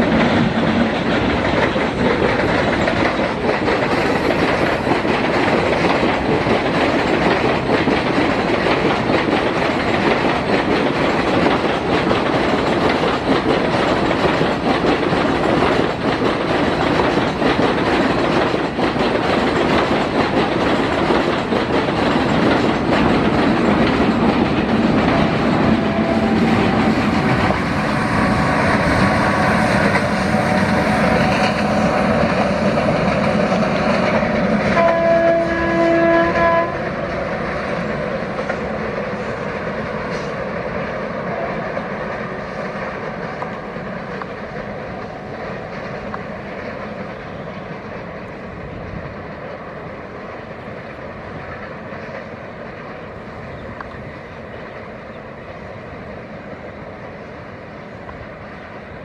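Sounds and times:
train wheels on rail: 0.0 - 59.0
locomotive horn blast: 25.6 - 27.3, 34.7 - 36.9.

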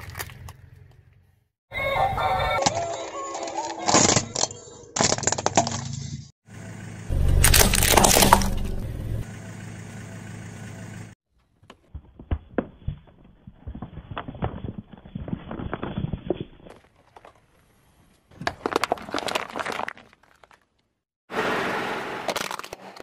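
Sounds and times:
tyre crushing paper cups: 2.6 - 5.8, 7.3 - 8.8, 11.6 - 17.6, 18.3 - 20.9, 22.3 - 23.0.

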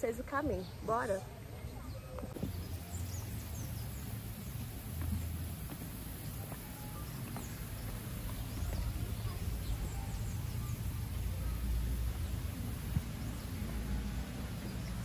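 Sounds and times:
bird chirps: 0.5 - 15.0
steady low rumble: 2.4 - 15.0.

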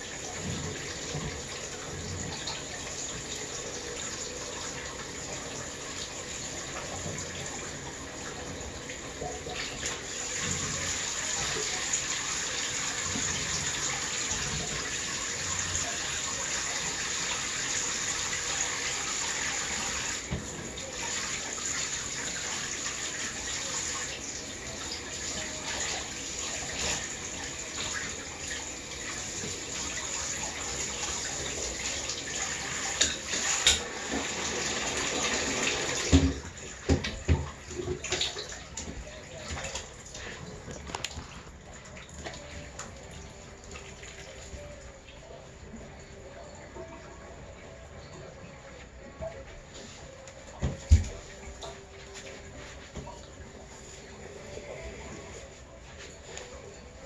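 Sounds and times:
water from shower sprayer: 0.0 - 38.8.

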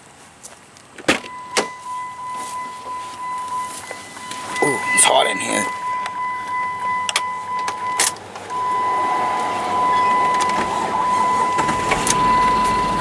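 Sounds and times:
car engine starting and running: 1.1 - 13.0
steady high tone: 1.3 - 13.0.

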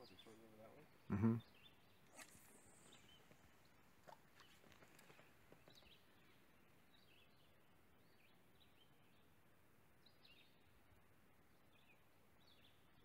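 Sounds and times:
faint bird chirps: 0.0 - 9.3.

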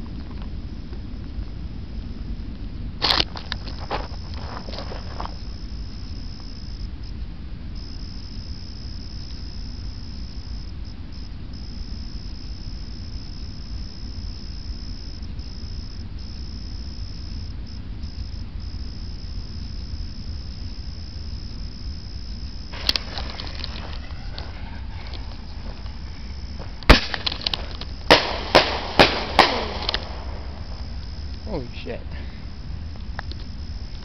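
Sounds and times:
crickets chirping: 0.0 - 34.0
firework bang: 22.7 - 31.3
firework crackling: 22.7 - 32.0.

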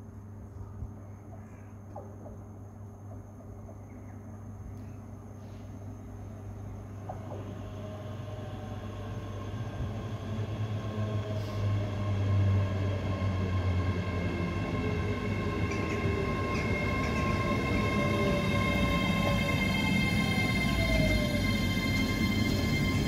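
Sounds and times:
high-pitched train whine: 5.4 - 23.0
train wheels rumbling on rail: 7.0 - 23.0.

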